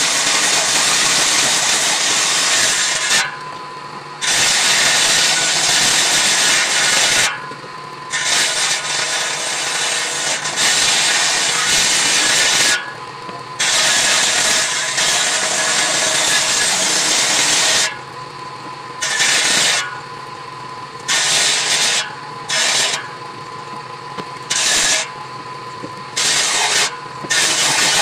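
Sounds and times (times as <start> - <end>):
table saw cutting wood: 0.0 - 3.4, 4.2 - 7.5, 8.1 - 13.0, 13.6 - 18.0, 19.0 - 20.0, 21.1 - 23.2, 24.5 - 25.2, 26.2 - 28.0
saw blade whining: 0.0 - 18.2, 19.0 - 20.1, 21.1 - 23.3, 24.4 - 28.0.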